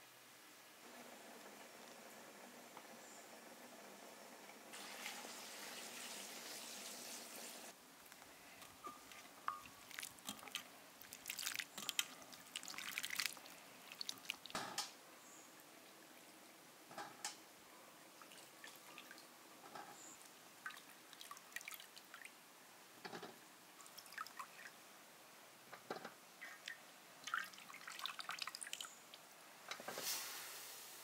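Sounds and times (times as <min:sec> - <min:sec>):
water dripping and splashing: 0:08.9 - 0:14.7, 0:18.2 - 0:19.3, 0:20.2 - 0:22.3, 0:23.8 - 0:24.7, 0:26.4 - 0:29.2.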